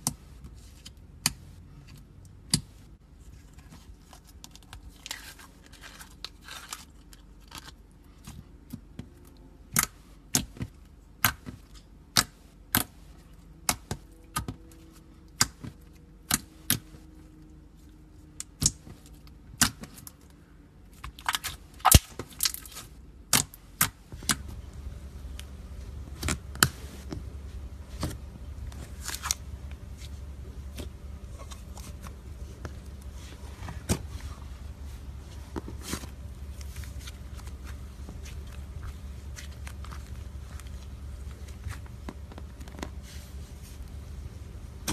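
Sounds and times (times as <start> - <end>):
low steady hum: 0.0 - 44.9.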